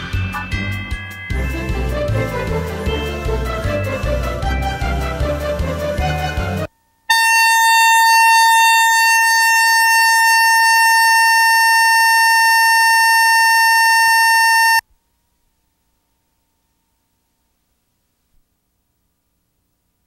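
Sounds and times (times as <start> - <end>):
music: 0.0 - 7.0
high-pitched electronic tone: 7.1 - 14.8.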